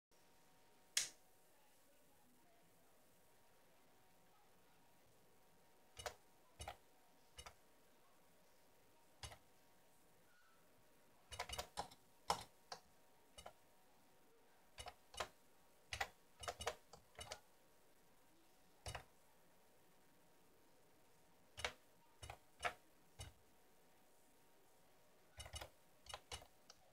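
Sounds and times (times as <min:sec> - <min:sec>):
keyboard keystrokes clicking: 0:06.0 - 0:06.8, 0:11.3 - 0:12.8, 0:14.8 - 0:15.3, 0:15.9 - 0:17.4, 0:18.8 - 0:19.1, 0:21.6 - 0:23.4, 0:25.4 - 0:26.9.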